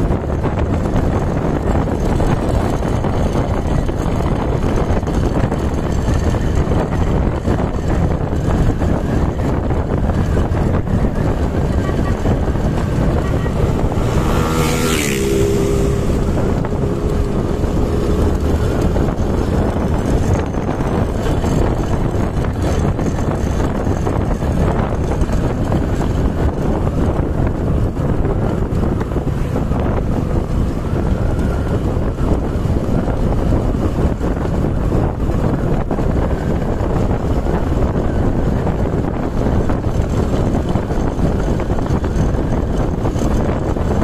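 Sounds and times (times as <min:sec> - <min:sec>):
passing motorcycle engine: 0:00.0 - 0:44.0
road and engine noise: 0:00.0 - 0:44.0
wind rush on microphone: 0:00.0 - 0:44.0.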